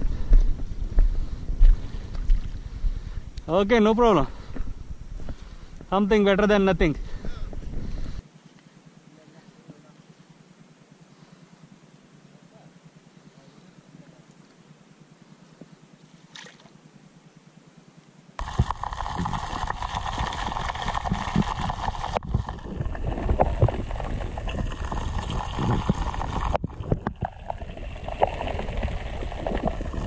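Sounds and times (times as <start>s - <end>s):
churning gurgling water underwater: 18.4s - 30.0s.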